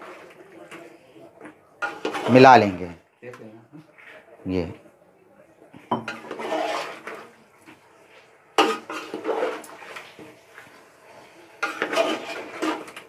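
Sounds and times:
stirring in a metal pot: 0:00.0 - 0:03.0, 0:05.8 - 0:13.0.

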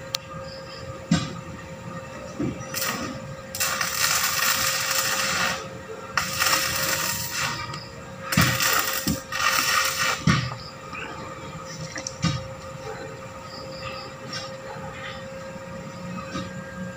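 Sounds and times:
welding arc crackling: 0:02.7 - 0:10.6.

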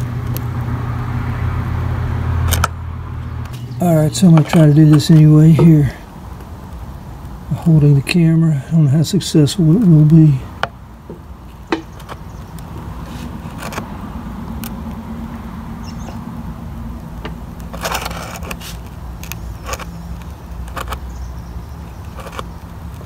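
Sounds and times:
steady low hum: 0:00.0 - 0:23.0
screwdriver clicking and scraping: 0:02.5 - 0:02.8, 0:13.2 - 0:13.9, 0:17.2 - 0:21.1, 0:22.0 - 0:23.0.

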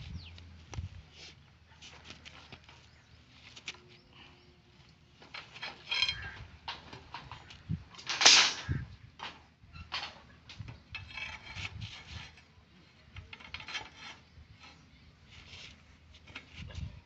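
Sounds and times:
steel bars knocking and scraping: 0:05.2 - 0:14.9.

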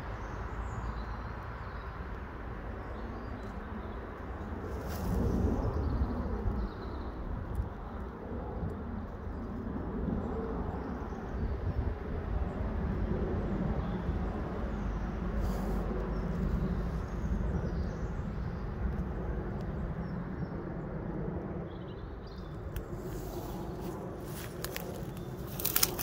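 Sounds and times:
low outdoor rumble: 0:11.9 - 0:26.0
light crackles: 0:22.7 - 0:26.0.

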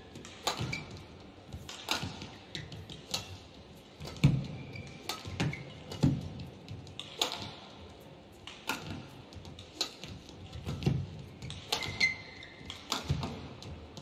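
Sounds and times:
shoes thudding and squeaking: 0:00.0 - 0:07.5, 0:08.8 - 0:14.0
racket striking shuttlecock: 0:00.1 - 0:03.4, 0:04.0 - 0:07.7, 0:08.4 - 0:13.8.

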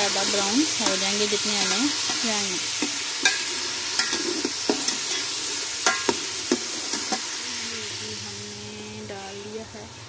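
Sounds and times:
metal spatula scraping a pot: 0:00.0 - 0:07.4
onions sizzling in oil: 0:00.0 - 0:10.0.

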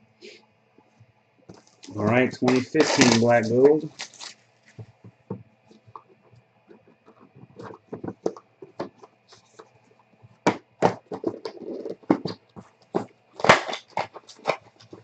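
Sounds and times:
cardboard lid scraping and rustling: 0:10.9 - 0:15.0.

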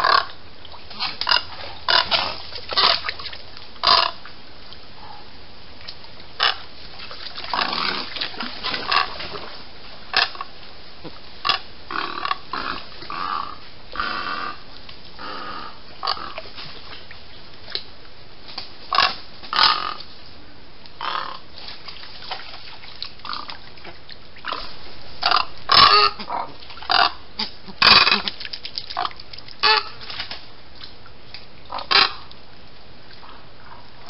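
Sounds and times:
steady background hiss: 0:00.0 - 0:34.0
wading birds calling: 0:06.4 - 0:17.5, 0:21.0 - 0:21.5, 0:22.8 - 0:30.0.

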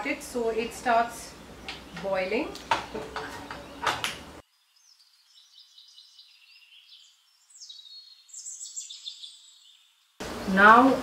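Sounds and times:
birds chirping and whistling: 0:01.5 - 0:04.0, 0:04.6 - 0:10.0.

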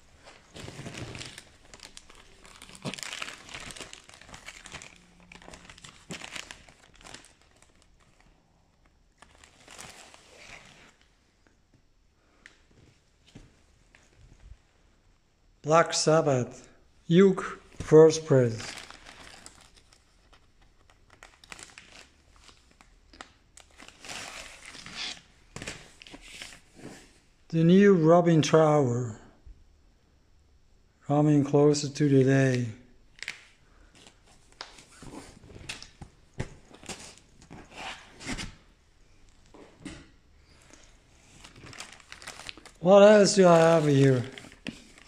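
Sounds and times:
packaging crinkling and tearing: 0:00.2 - 0:11.0, 0:18.4 - 0:26.6, 0:39.8 - 0:45.0.

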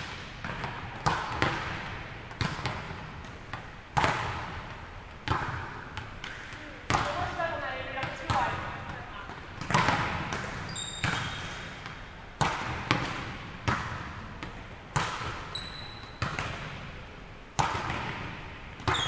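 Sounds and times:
volleyballs hit and bouncing: 0:00.0 - 0:19.0
high squeaks: 0:10.7 - 0:11.4, 0:15.5 - 0:16.2.

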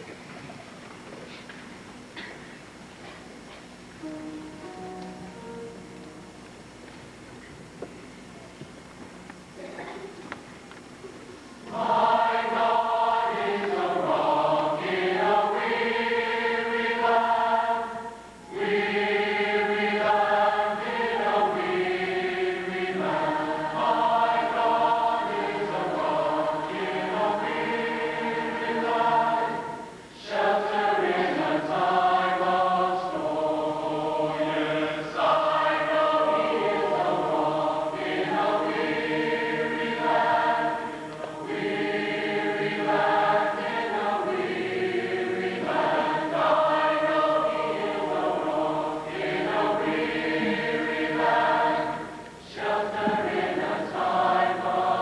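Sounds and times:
male choir singing: 0:11.7 - 0:55.0.

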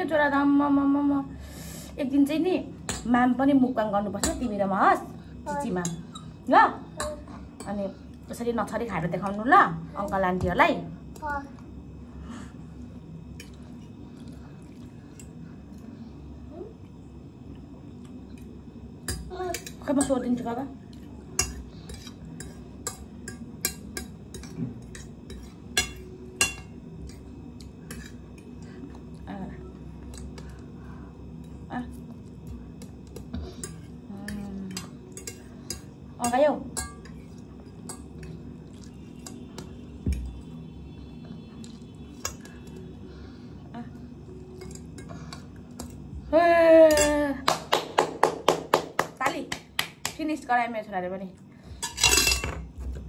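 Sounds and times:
people clapping: 0:47.5 - 0:50.2
fork clinking on a plate: 0:51.8 - 0:52.6.

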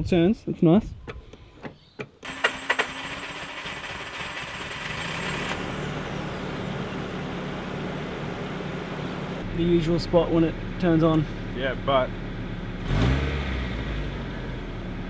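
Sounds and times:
engine starter cranking: 0:02.2 - 0:05.7
car engine running: 0:02.3 - 0:15.0.

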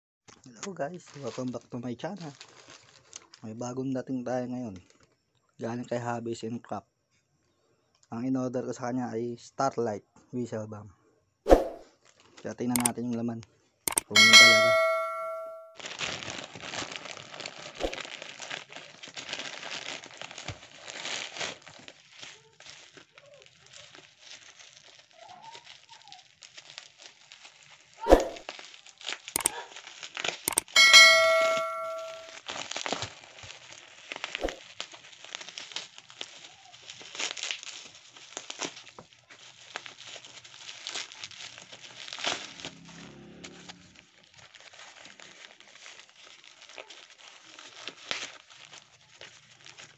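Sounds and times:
plastic packaging crinkling and tearing: 0:00.4 - 0:03.6, 0:12.0 - 0:13.1, 0:15.8 - 0:30.5, 0:32.3 - 0:42.9, 0:44.0 - 0:49.9
short bell-like chime: 0:13.9 - 0:15.7, 0:30.5 - 0:32.3
sharp knock: 0:28.1 - 0:28.4.

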